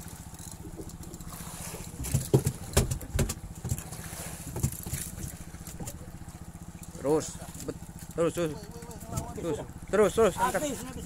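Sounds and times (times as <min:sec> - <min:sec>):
boat engine humming: 0:00.0 - 0:11.0
sharp knocks and thumps: 0:02.0 - 0:05.3.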